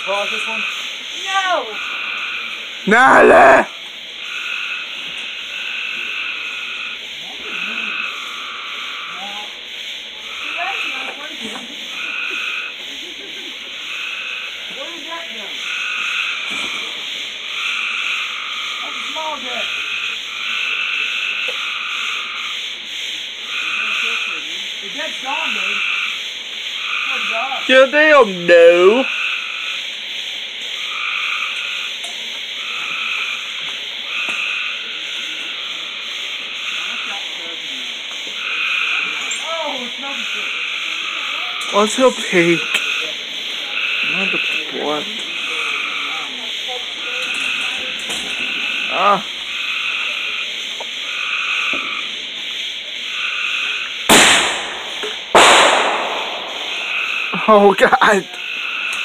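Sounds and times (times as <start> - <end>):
frogs calling: 0.0 - 59.0
firework bangs: 53.5 - 57.4.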